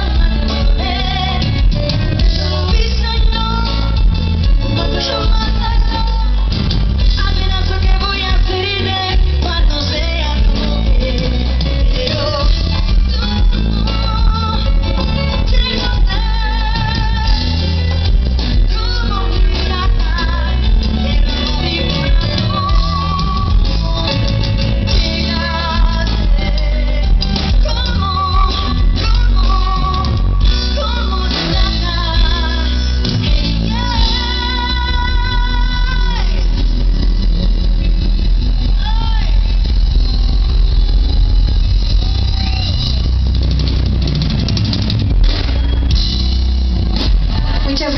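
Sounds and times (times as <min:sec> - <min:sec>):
woman singing: 0:00.0 - 0:37.0
live band playing: 0:00.0 - 0:47.9.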